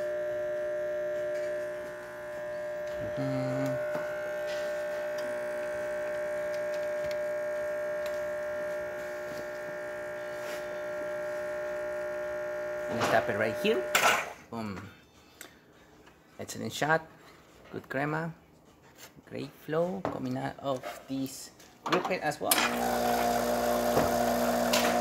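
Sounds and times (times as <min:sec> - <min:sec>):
espresso machine pump humming: 0:00.0 - 0:14.3, 0:22.6 - 0:25.0
low buzz: 0:00.0 - 0:14.3, 0:22.6 - 0:25.0.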